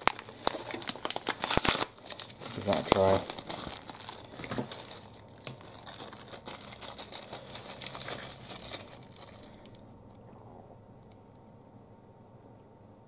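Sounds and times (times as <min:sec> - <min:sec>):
paper wrapping crinkling: 0:00.0 - 0:09.9.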